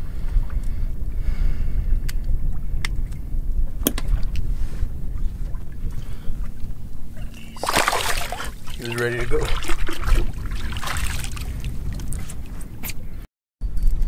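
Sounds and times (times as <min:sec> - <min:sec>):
wind rumble on microphone: 0:00.0 - 0:14.0.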